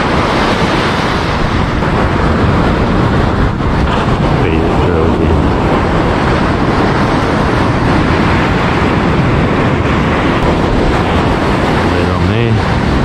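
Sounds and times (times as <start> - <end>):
surf breaking on a beach: 0.0 - 13.0.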